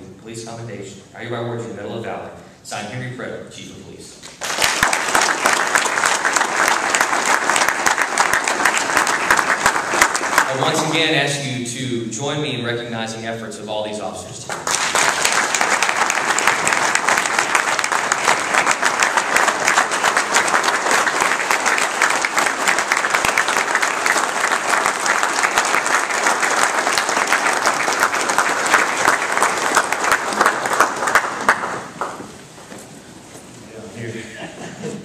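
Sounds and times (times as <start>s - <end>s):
audience applauding: 4.4s - 11.0s, 14.5s - 32.4s.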